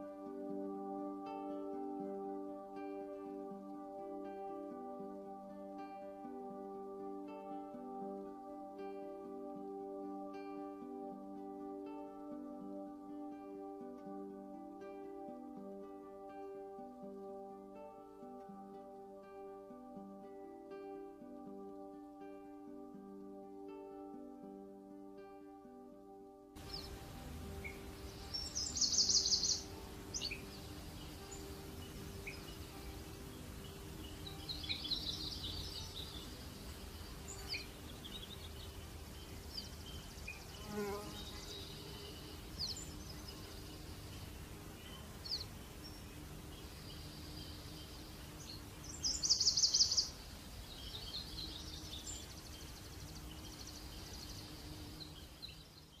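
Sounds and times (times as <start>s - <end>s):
birds chirping: 26.6s - 56.0s
insects buzzing: 26.6s - 56.0s
songbird trilling: 26.6s - 56.0s.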